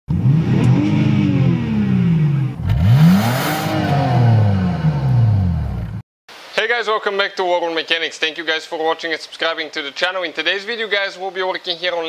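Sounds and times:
car engine revving: 0.1s - 6.0s.

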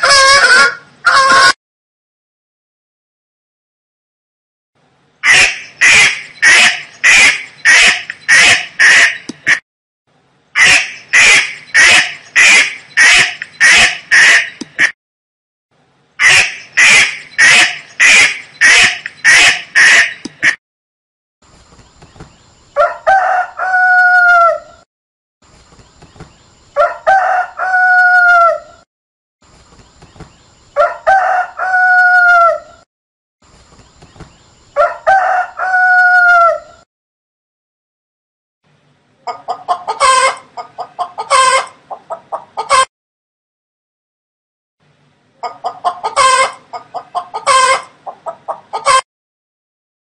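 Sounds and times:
duck quacking: 5.2s - 9.6s, 10.6s - 14.9s, 16.2s - 20.6s
rooster crowing: 22.8s - 24.8s, 26.8s - 28.8s, 30.8s - 32.8s, 34.8s - 36.8s.

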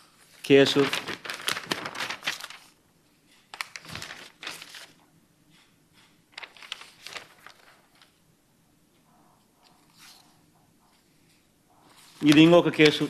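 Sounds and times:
paper rustling and crinkling: 0.2s - 5.1s, 6.3s - 8.2s, 9.6s - 10.4s, 11.9s - 13.0s.

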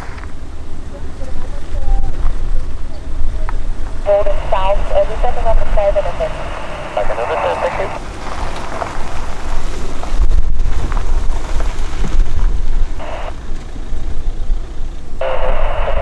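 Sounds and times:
wind buffeting microphone: 0.0s - 15.9s
radio voice chatter: 2.9s - 8.0s, 13.0s - 13.3s, 15.2s - 16.0s.

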